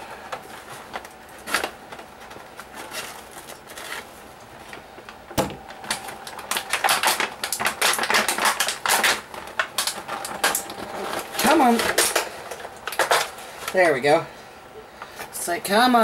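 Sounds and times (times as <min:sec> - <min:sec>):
scissors snipping plastic packaging: 0:00.3 - 0:04.1, 0:05.4 - 0:13.8
plastic clicking and crackling: 0:00.3 - 0:13.8.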